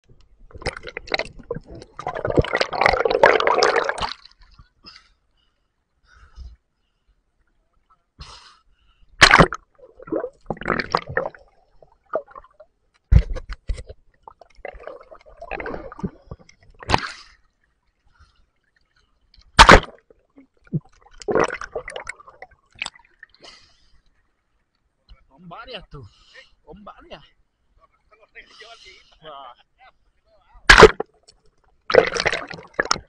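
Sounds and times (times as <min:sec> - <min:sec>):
sea water splashing and gurgling: 0:00.4 - 0:04.8, 0:09.2 - 0:13.3, 0:14.2 - 0:23.4, 0:30.6 - 0:33.0
loud water splashes: 0:09.2 - 0:09.6, 0:19.6 - 0:20.0, 0:30.7 - 0:31.0.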